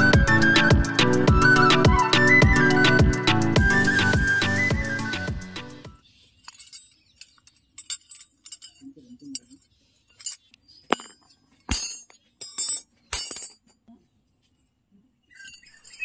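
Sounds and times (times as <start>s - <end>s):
steel rods clinking: 6.4s - 13.8s
metal knocks on ground: 10.9s - 13.6s.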